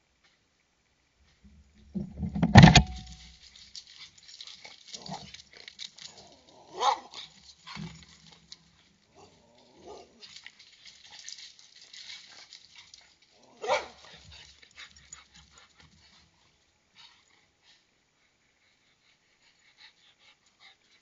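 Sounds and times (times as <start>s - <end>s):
animal bark-like calls: 6.7s - 7.2s, 13.6s - 14.1s.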